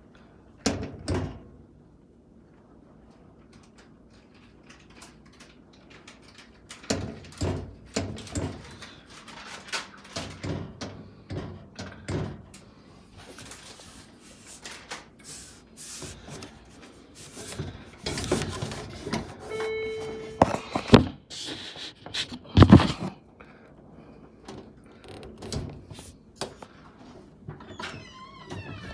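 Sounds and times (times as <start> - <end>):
scraping and handling sounds: 12.9 - 23.2, 24.9 - 27.2.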